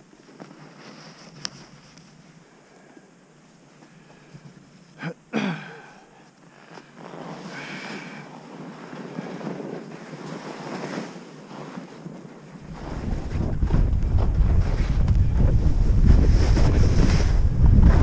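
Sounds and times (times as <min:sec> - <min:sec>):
skis scraping over snow: 0:00.0 - 0:02.5, 0:06.5 - 0:18.0
wind buffeting microphone: 0:12.6 - 0:18.0.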